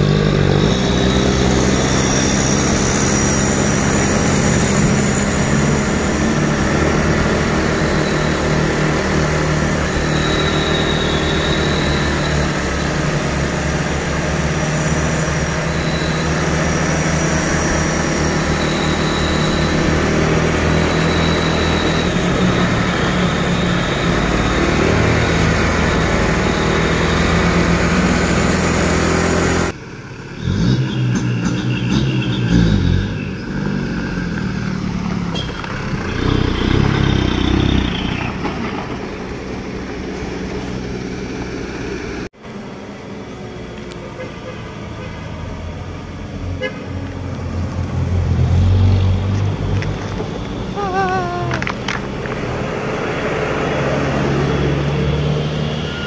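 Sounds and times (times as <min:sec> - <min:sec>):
road noise: 0:00.0 - 0:56.0
traffic noise: 0:00.0 - 0:56.0
truck engine: 0:00.0 - 0:56.0
vehicle horn blasts: 0:46.6 - 0:47.0.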